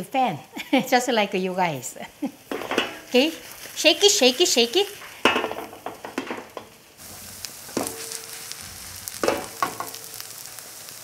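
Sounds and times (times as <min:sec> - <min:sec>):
pancake sizzling in oil: 0:00.0 - 0:11.0
pan scraping on stove grate: 0:02.5 - 0:10.5.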